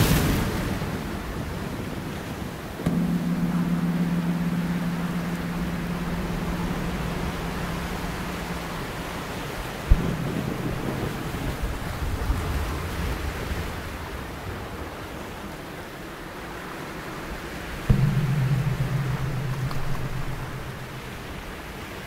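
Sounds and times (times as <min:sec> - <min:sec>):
sudden hit: 0:02.9 - 0:12.4, 0:17.9 - 0:21.8
low droning tones: 0:02.9 - 0:12.8, 0:17.9 - 0:22.0.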